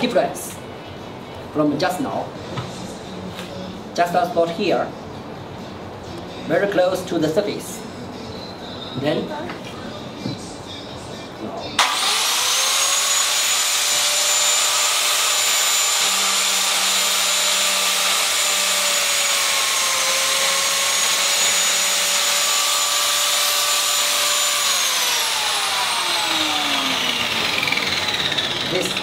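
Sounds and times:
blade cutting into wood: 11.8 - 29.0
power tool motor whining: 11.8 - 29.0.

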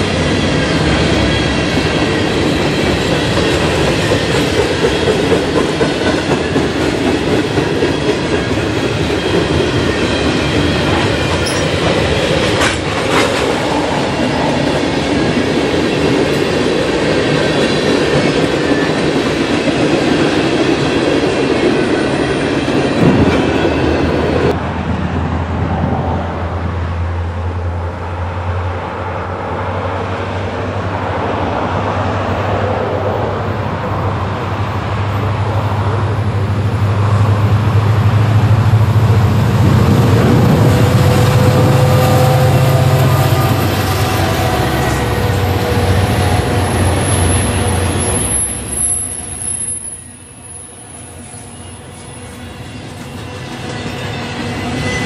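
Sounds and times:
freight cars clickety-clack: 0.0 - 24.6
diesel locomotive engines rumbling: 0.0 - 55.0
wheel squeal: 46.2 - 55.0.

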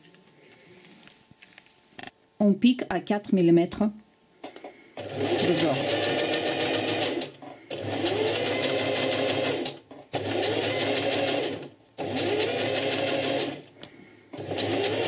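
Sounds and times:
sewing machine stitching: 5.0 - 13.7, 14.4 - 15.0.

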